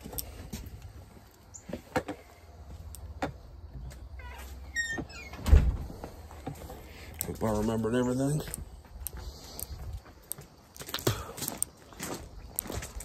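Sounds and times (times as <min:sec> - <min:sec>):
footsteps walking: 0:00.0 - 0:05.1, 0:05.8 - 0:13.0
short squeaks: 0:04.2 - 0:05.5.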